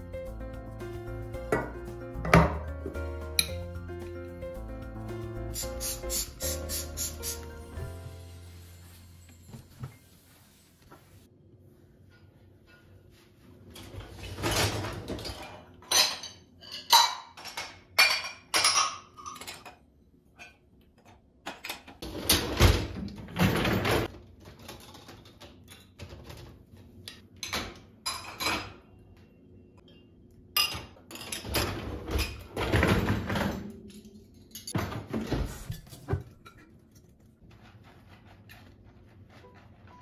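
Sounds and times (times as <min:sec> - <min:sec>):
dishes and cutlery clattering: 0:13.8 - 0:22.6, 0:27.2 - 0:28.9, 0:29.8 - 0:37.2.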